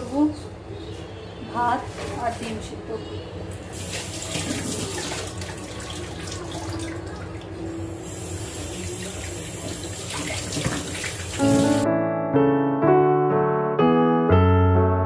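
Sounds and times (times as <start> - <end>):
tap water running into sink: 3.7 - 11.8
piano music: 11.2 - 15.0.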